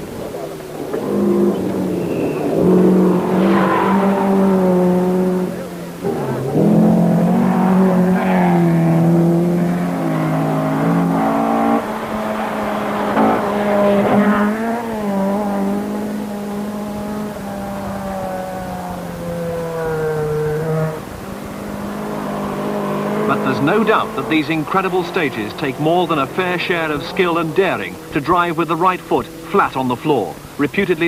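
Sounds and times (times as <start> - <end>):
rally car engines at high revs: 0.0 - 31.0.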